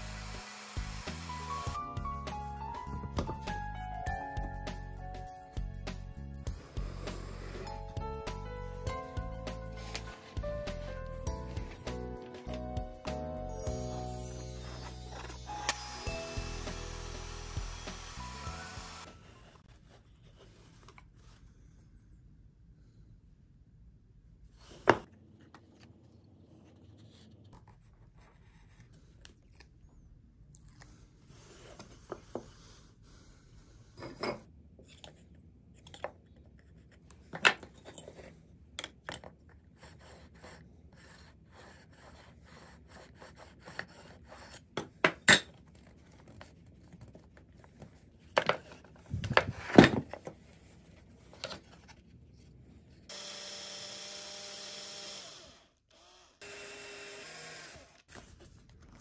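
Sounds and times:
handheld drill running: 0.0s - 1.8s, 14.6s - 19.1s, 53.1s - 58.1s.

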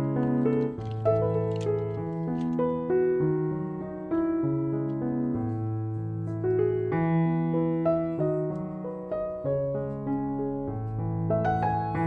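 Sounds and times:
slow piano music: 0.0s - 12.0s.

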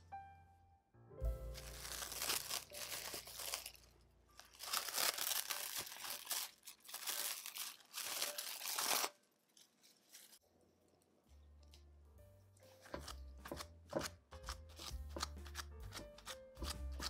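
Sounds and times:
plastic cling film crinkling: 1.4s - 10.4s.

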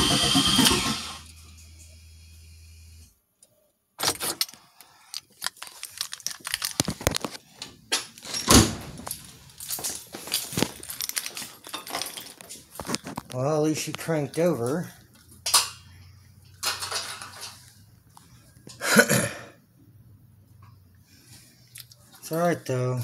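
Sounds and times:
low steady hum: 0.1s - 3.2s
metallic jangling and clicking: 8.2s - 12.6s.

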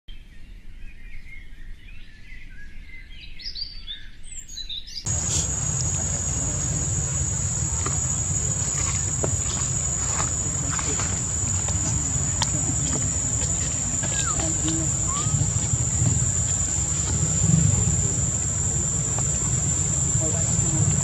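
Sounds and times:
faint wavering chirp-like glides: 5.1s - 21.0s
high-pitched insect drone: 5.1s - 21.0s
low rumble: 5.1s - 21.0s.

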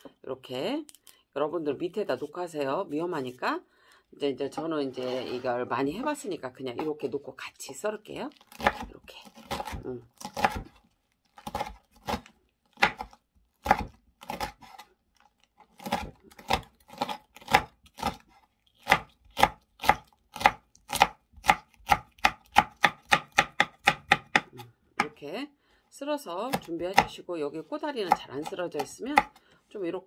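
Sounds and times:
knife chopping on wooden board: 8.5s - 10.8s, 11.4s - 14.8s, 15.8s - 25.2s, 26.5s - 27.2s, 28.0s - 29.4s.

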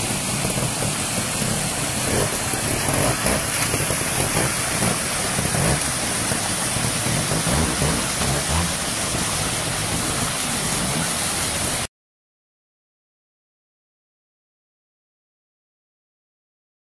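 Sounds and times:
flowing water rushing: 0.0s - 11.9s
motorcycle engine at low revs: 0.0s - 11.9s.

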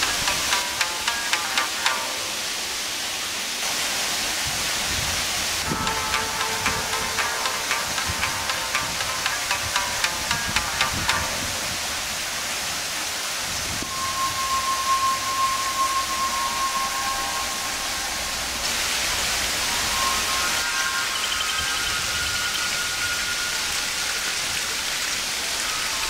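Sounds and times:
high held tone: 0.0s - 2.8s, 5.6s - 11.9s, 13.8s - 24.1s
waterfall rushing: 0.0s - 26.0s.

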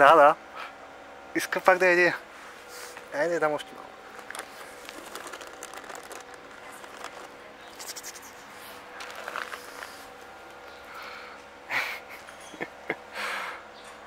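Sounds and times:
plastic bag rustling: 4.1s - 7.4s, 9.0s - 10.2s.

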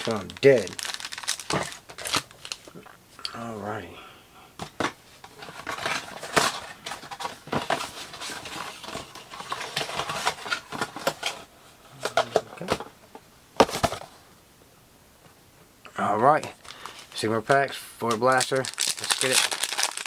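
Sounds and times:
trading cards being handled: 16.5s - 20.0s.

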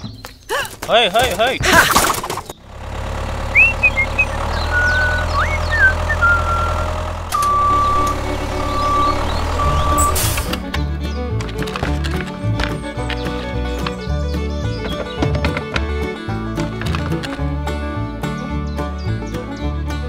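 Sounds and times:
tractor engine rumble: 0.5s - 20.0s
long high beeps: 3.6s - 10.3s
short high chirps: 3.6s - 10.4s.

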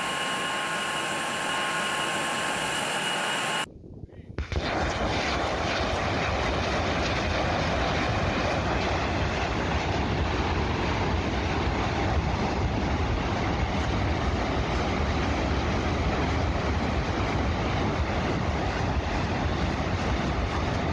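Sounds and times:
heavy low rumble: 3.6s - 20.9s
rocket launchers firing: 4.4s - 10.2s.

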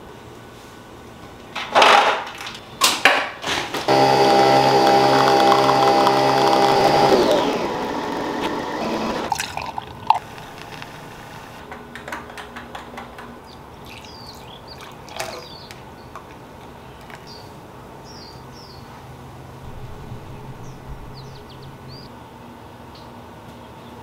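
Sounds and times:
espresso machine pump hum: 3.9s - 11.6s
coffee pouring into mug: 9.3s - 11.2s.

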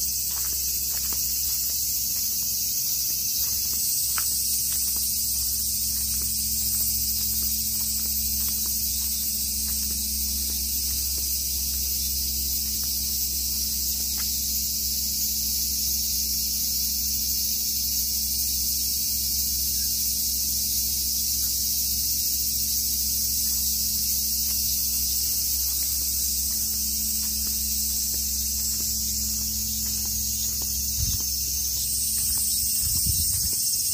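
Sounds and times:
insects chorus hissing: 0.0s - 33.9s
low hum: 4.6s - 14.6s, 23.2s - 33.6s.

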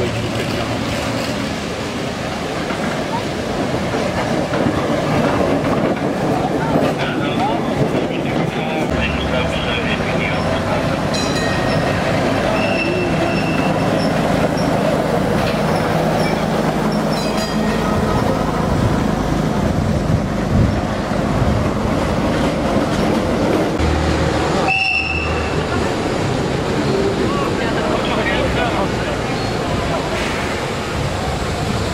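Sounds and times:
trams rolling on street track: 0.0s - 31.9s
steel wheels squealing on rails: 10.2s - 18.4s, 24.6s - 25.9s, 26.7s - 31.0s.

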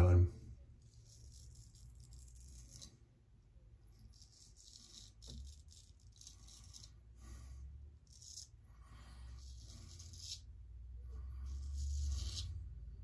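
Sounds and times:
razor scraping stubble: 0.8s - 3.0s, 4.0s - 7.0s, 8.0s - 8.6s, 9.2s - 10.5s, 11.4s - 12.6s.

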